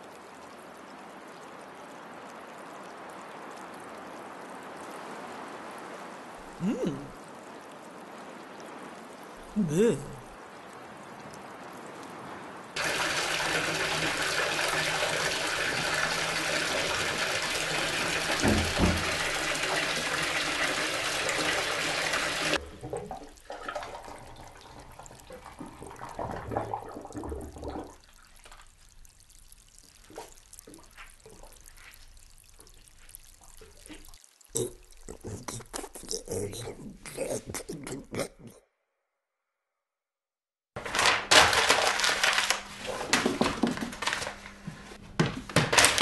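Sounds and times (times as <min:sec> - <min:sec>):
water drips and splashes: 0:00.0 - 0:38.6
water gushing from bath tap: 0:12.8 - 0:38.3.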